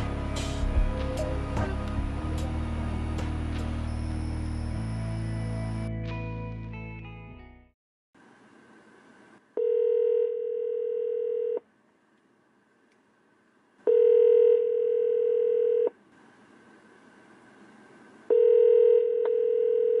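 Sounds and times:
telephone ringback tone: 0:09.6 - 0:11.6, 0:13.9 - 0:15.9, 0:18.3 - 0:20.0.

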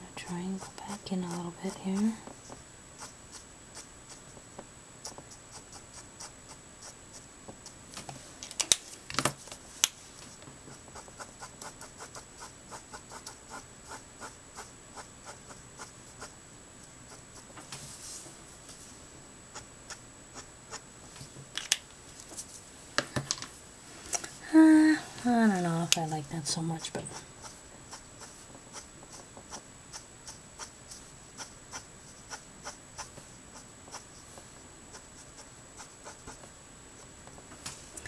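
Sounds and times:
marker scratching on cardstock: 0:00.5 - 0:04.4, 0:05.0 - 0:07.2, 0:10.7 - 0:16.4, 0:27.1 - 0:34.3, 0:34.9 - 0:36.4.

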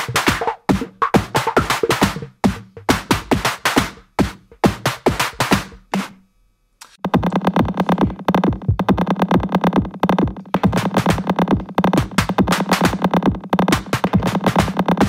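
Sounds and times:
echoing electronic percussion hits: 0:07.0 - 0:15.0.

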